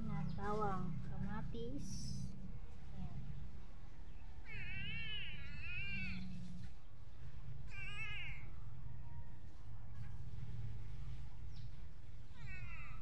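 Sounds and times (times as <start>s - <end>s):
cat meowing: 4.4s - 6.2s, 7.7s - 8.5s.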